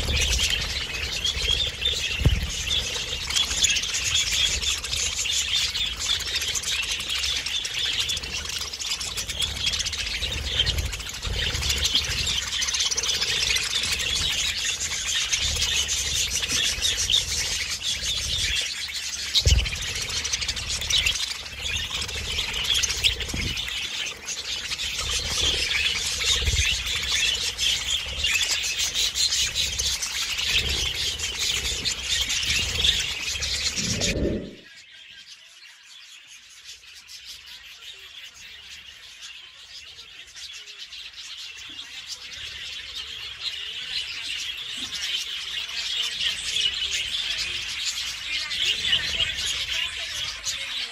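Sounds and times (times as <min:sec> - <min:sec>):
budgerigars chattering: 0:00.0 - 0:34.1, 0:37.4 - 0:50.9
low thumps: 0:02.1 - 0:02.9.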